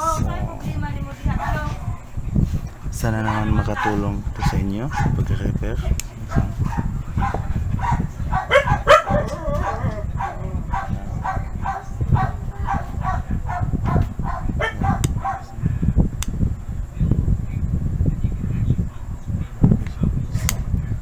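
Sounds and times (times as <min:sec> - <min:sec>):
sharp clicks: 0:15.0 - 0:15.2.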